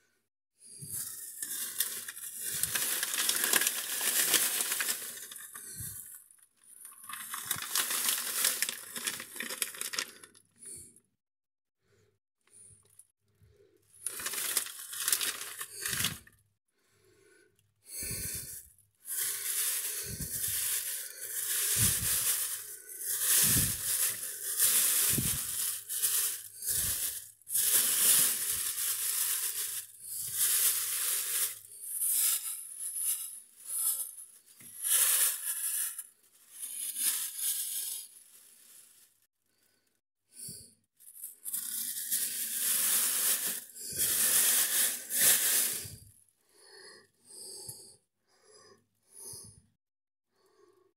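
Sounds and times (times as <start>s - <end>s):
plastic bags rustling: 0.8s - 6.1s, 6.8s - 10.4s, 14.0s - 16.3s, 18.0s - 39.3s, 41.1s - 46.1s.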